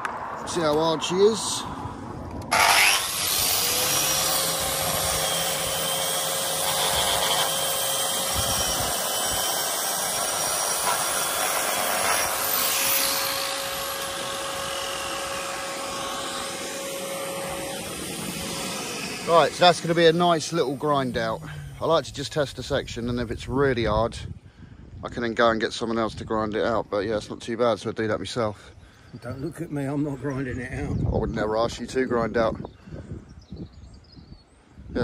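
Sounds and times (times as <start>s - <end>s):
angle grinder grinding mortar: 2.5s - 22.4s.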